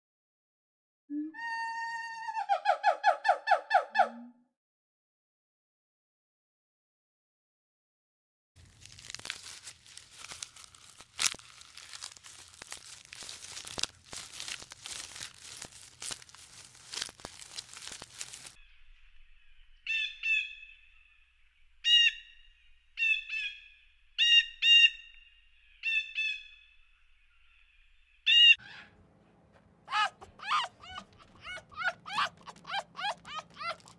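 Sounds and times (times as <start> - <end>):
bird calling: 29.9 - 33.9
clicking and scratching: 30.6 - 33.9.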